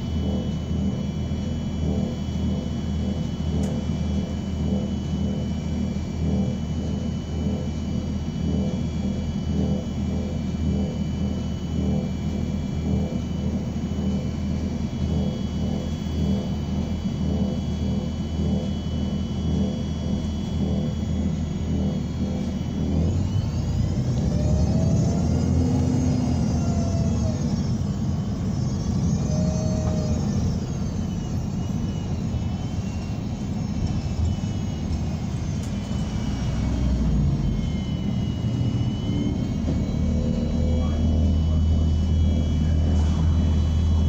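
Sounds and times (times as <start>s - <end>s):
high whining tones: 0.0s - 44.0s
bus engine rumble: 20.9s - 44.0s.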